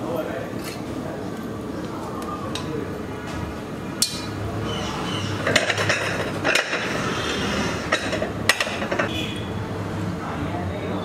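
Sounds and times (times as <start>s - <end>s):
steady background hum: 0.0s - 11.0s
metal utensils clinking on griddle: 4.0s - 4.4s, 5.4s - 7.0s, 7.9s - 9.1s.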